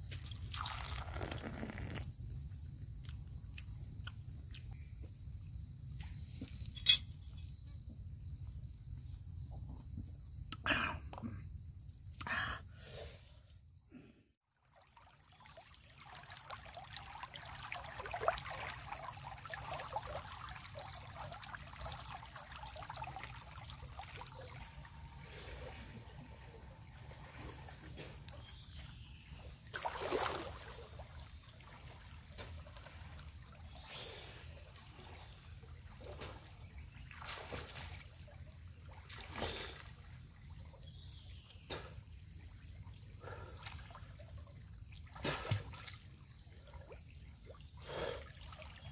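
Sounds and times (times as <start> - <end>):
water sloshing and splashing: 0.0 - 1.7, 14.6 - 41.0, 43.3 - 48.9.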